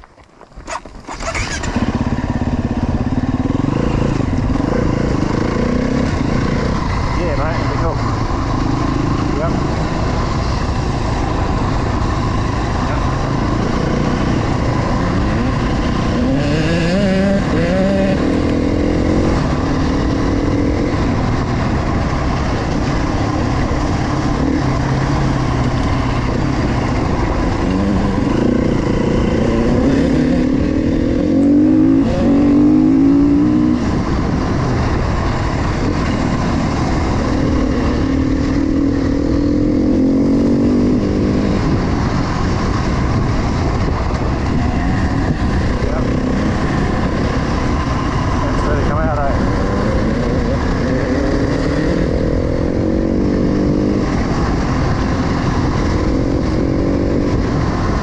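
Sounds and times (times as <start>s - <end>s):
dirt bike engine accelerating: 0.5s - 58.0s.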